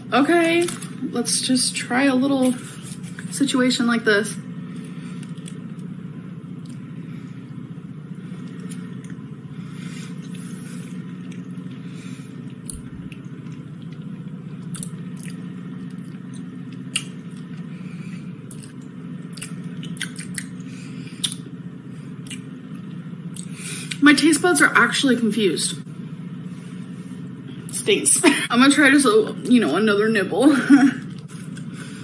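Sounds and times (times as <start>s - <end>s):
steady low hum: 0.0s - 32.0s
chewing mouth sounds: 10.0s - 24.0s.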